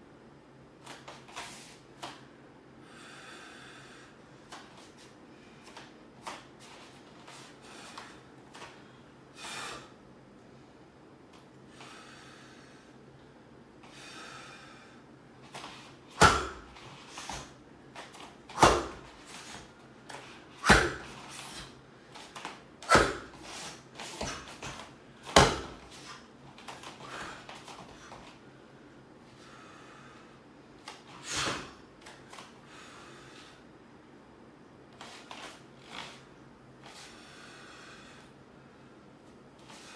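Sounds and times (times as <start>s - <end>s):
feet stamping on a floor mat: 15.5s - 28.3s.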